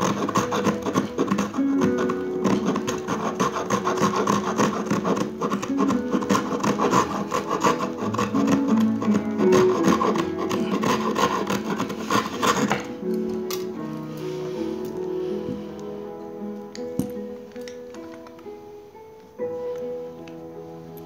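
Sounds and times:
saw rasping through wood: 0:00.0 - 0:13.0.

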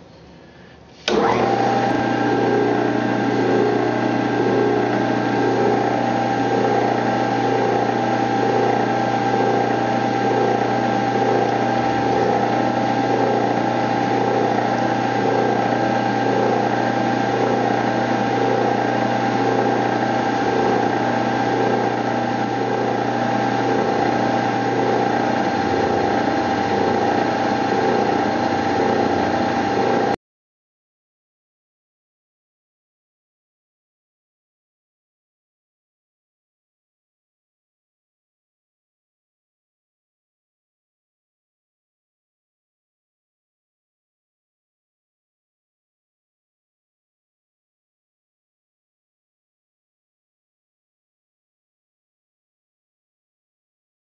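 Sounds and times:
end mill cutting steel: 0:01.0 - 0:30.2
milling machine whining: 0:01.0 - 0:30.2.

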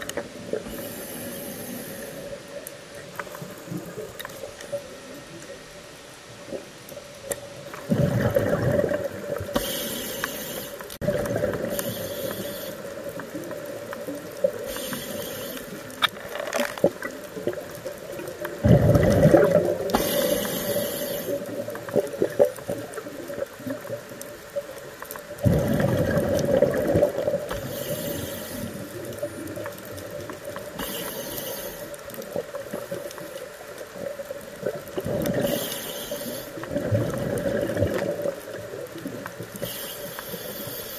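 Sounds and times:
regulator hissing inhalations: 0:00.6 - 0:02.4, 0:09.5 - 0:10.9, 0:11.6 - 0:13.0, 0:14.6 - 0:15.9, 0:19.9 - 0:21.6, 0:27.5 - 0:29.0, 0:30.7 - 0:32.0, 0:35.4 - 0:36.6, 0:39.6 - 0:40.9
exhaled bubbles rushing: 0:07.8 - 0:09.6, 0:11.0 - 0:11.8, 0:18.6 - 0:20.3, 0:25.4 - 0:27.6, 0:36.7 - 0:38.7.

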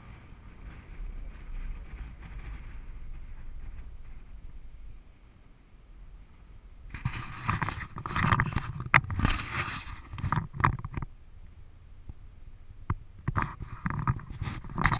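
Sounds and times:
fingers rubbing on camera: 0:06.9 - 0:11.1, 0:13.2 - 0:14.9.

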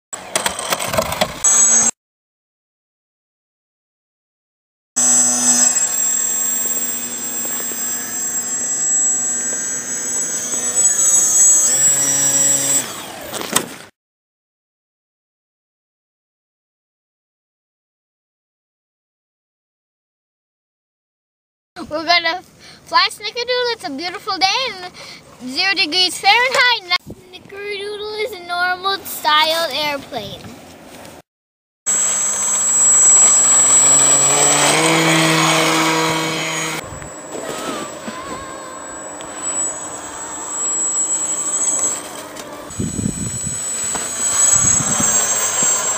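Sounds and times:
electric motor and propeller whining: 0:00.2 - 0:01.9, 0:05.0 - 0:13.9, 0:31.9 - 0:45.9.

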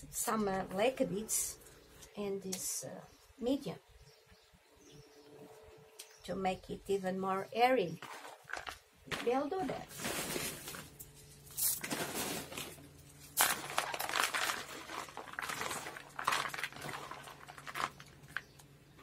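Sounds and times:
potting mix rattling in plastic bowl: 0:08.0 - 0:11.0, 0:11.6 - 0:18.6
plastic bag crinkling: 0:08.0 - 0:18.6.

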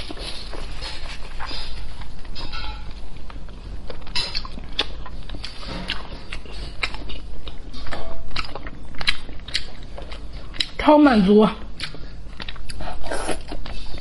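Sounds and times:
wet chewing mouth clicks: 0:03.2 - 0:10.8, 0:11.7 - 0:14.0.

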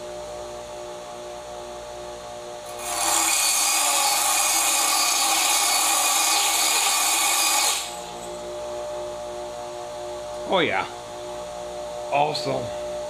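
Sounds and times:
bench grinder humming: 0:02.7 - 0:08.9.

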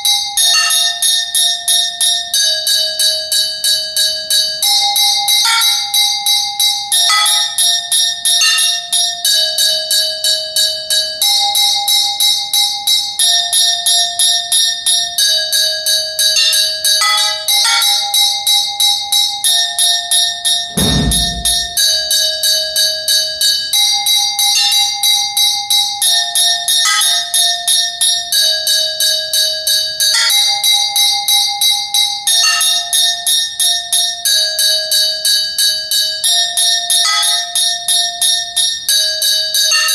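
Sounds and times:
metal percussion ringing clinks: 0:16.4 - 0:18.3
low drum thud: 0:20.8 - 0:22.1.

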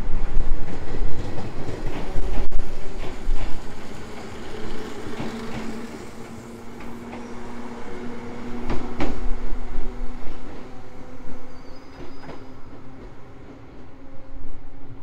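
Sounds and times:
electric train humming: 0:00.0 - 0:15.0
wheels clicking over rail joints: 0:00.7 - 0:07.3.

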